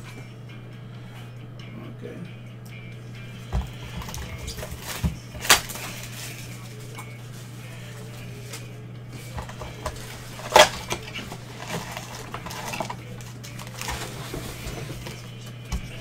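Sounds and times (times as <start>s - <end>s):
low electrical hum: 0.0s - 16.0s
card packs clattering on table: 3.4s - 16.0s
foil packs rustling: 3.4s - 16.0s.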